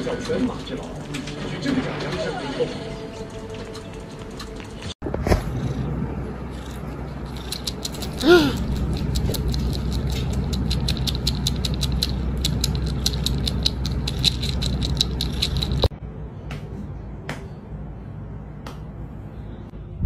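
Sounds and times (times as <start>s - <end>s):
cat teeth clicking on plastic: 7.3s - 15.9s.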